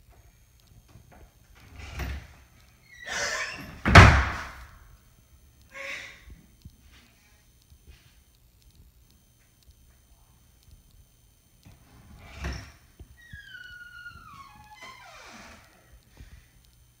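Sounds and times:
thump on wooden door: 0:03.8 - 0:04.6.

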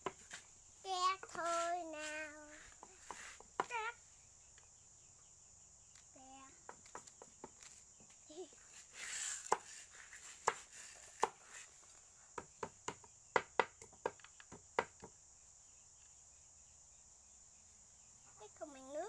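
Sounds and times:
cleaver chopping on wooden block: 0:09.4 - 0:09.8, 0:10.4 - 0:11.4, 0:12.4 - 0:15.1.

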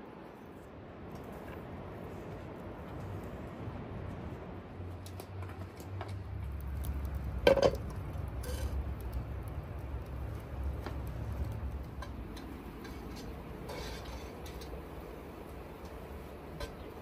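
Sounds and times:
frying pan clanking on iron stand: 0:07.4 - 0:07.9.

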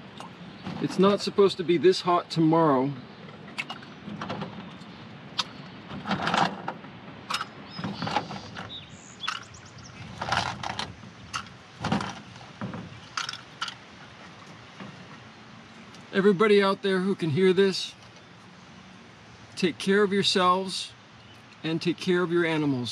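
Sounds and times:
plastic containers clicking and rustling: 0:10.2 - 0:13.8.

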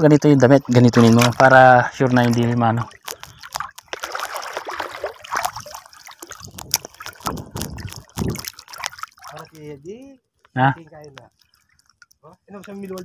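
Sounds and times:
muddy water splashing: 0:00.4 - 0:10.0.

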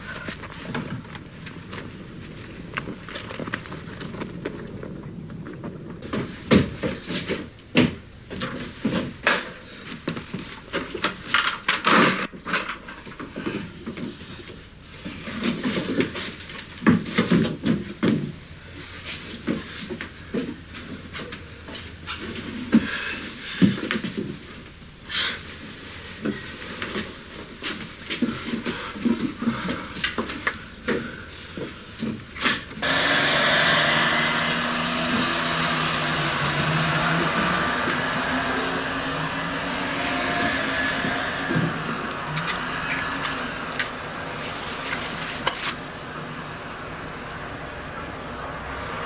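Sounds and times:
person panting: 0:25.1 - 0:25.5, 0:28.2 - 0:31.8.

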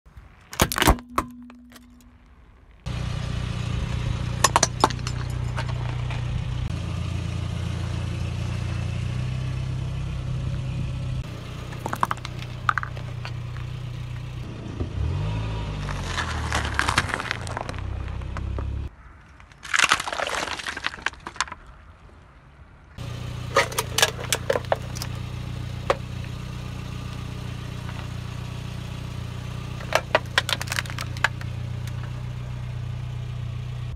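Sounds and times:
tyre crushing plastic and metal: 0:00.4 - 0:02.3, 0:11.6 - 0:13.6, 0:23.5 - 0:25.2, 0:29.8 - 0:32.1
car engine running low: 0:01.0 - 0:18.9, 0:23.0 - 0:33.9.

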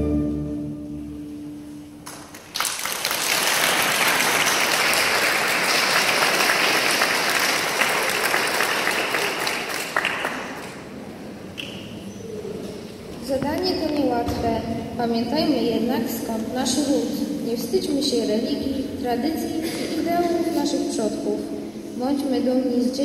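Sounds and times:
audience applauding: 0:02.1 - 0:10.8.

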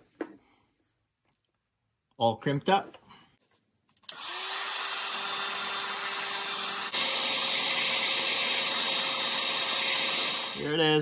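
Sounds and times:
heat gun fan whirr: 0:04.1 - 0:10.7.

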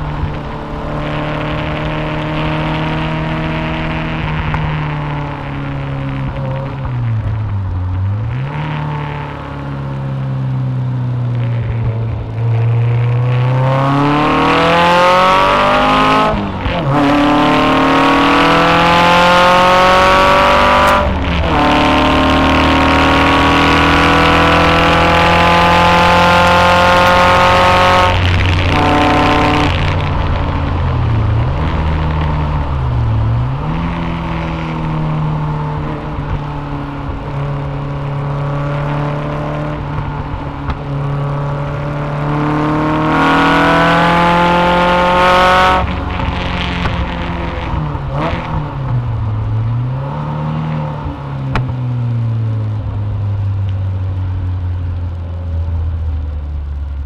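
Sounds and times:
sports car engine accelerating: 0:00.0 - 0:57.0.

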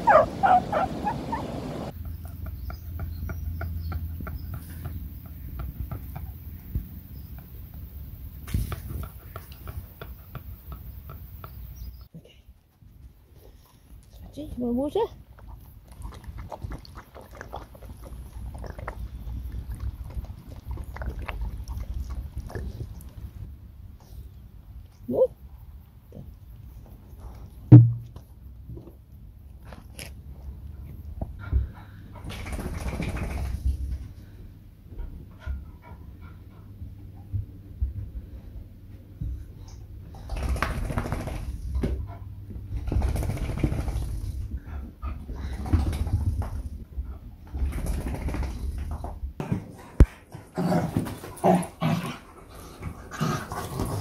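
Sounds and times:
dog lapping water: 0:15.3 - 0:23.2.

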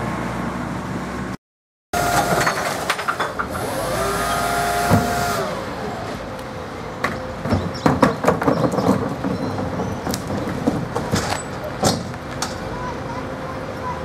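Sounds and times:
hydraulic bin lifter whining: 0:02.0 - 0:06.3.

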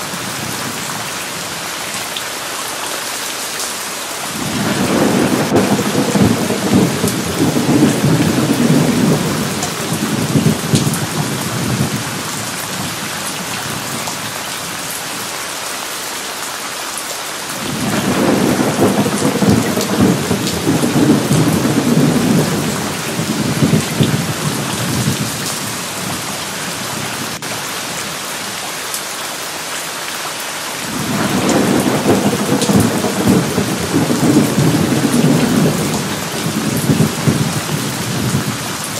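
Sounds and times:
heavy rain: 0:00.0 - 0:38.9
rolling thunder rumbles: 0:04.3 - 0:13.0, 0:17.6 - 0:27.4, 0:30.9 - 0:38.9.

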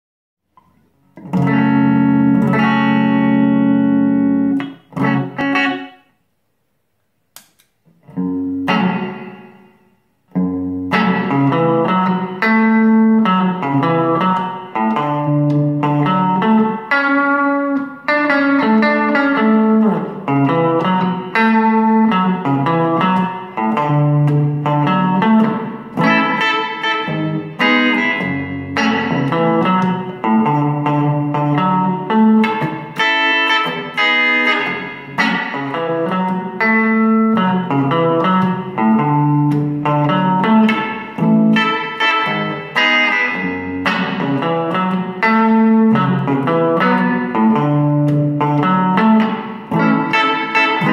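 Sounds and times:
electric guitar with reverb: 0:00.5 - 0:06.5, 0:07.4 - 0:50.9
short click: 0:07.3 - 0:07.8.

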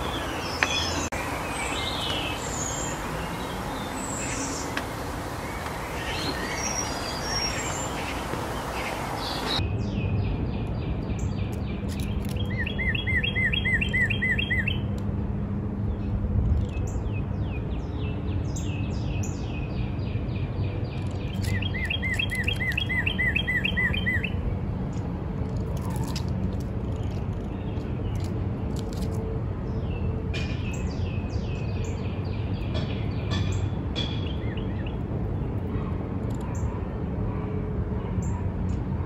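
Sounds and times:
songbird singing: 0:00.0 - 0:15.0, 0:15.9 - 0:36.8.

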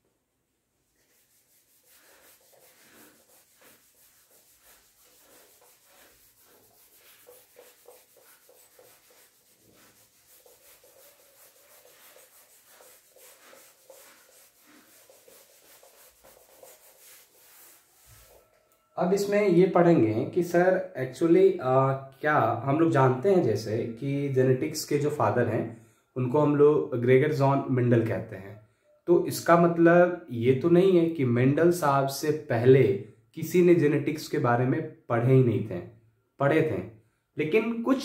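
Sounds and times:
cloth wiping a whiteboard: 0:00.8 - 0:19.3.

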